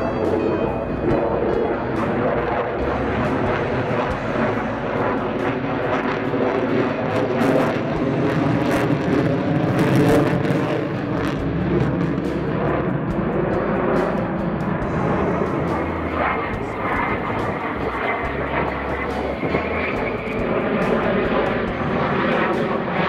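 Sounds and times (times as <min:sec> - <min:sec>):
jet engine roar: 0:00.0 - 0:23.0.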